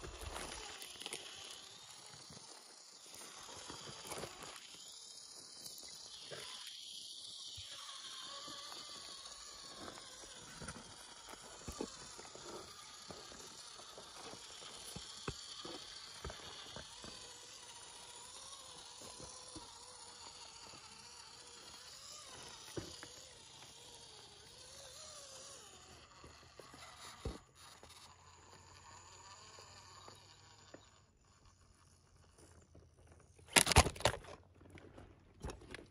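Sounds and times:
rocks clicking and clattering: 0:00.0 - 0:01.9, 0:33.5 - 0:35.9
tyres grinding over loose shale: 0:00.0 - 0:28.4
electric motor and gears whining: 0:00.0 - 0:34.4.

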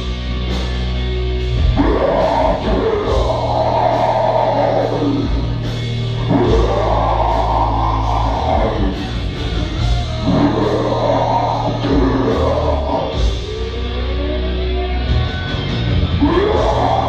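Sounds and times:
heavy metal song: 0:00.0 - 0:17.0
growled vocals: 0:01.6 - 0:09.3, 0:10.1 - 0:14.6, 0:16.2 - 0:17.0.

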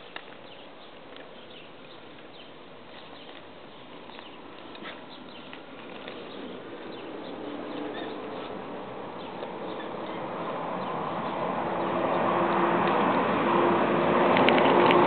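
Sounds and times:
paper crinkling and crackling: 0:00.0 - 0:08.6.

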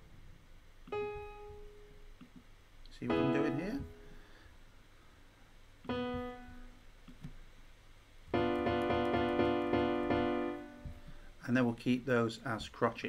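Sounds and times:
sampled piano chords: 0:00.9 - 0:02.2, 0:03.0 - 0:04.2, 0:05.8 - 0:07.0, 0:08.3 - 0:11.2.

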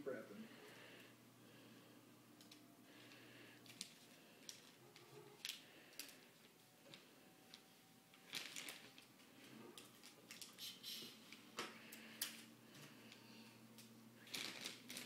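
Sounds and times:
wrapping paper crinkling: 0:03.0 - 0:11.1, 0:13.8 - 0:15.0.

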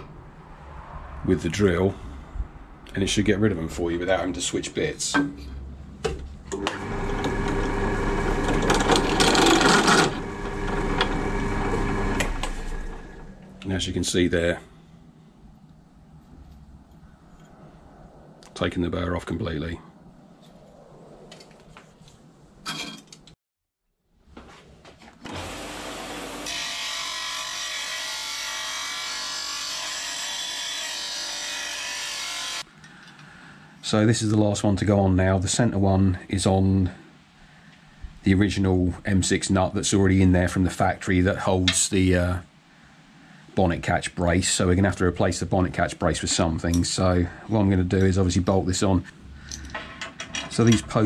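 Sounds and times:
pillar drill motor hum: 0:06.5 - 0:13.6, 0:25.2 - 0:26.7
bench sander running: 0:06.6 - 0:13.3, 0:25.3 - 0:28.6
drill bit cutting steel: 0:06.7 - 0:13.3.

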